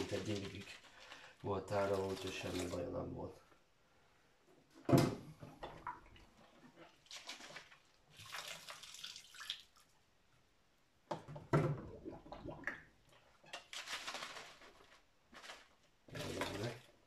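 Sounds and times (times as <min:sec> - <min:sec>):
water pouring from bottle: 0:00.0 - 0:03.0, 0:05.8 - 0:09.9, 0:11.8 - 0:17.0
water splashing and sloshing: 0:01.7 - 0:03.0, 0:04.9 - 0:10.0, 0:11.1 - 0:17.0.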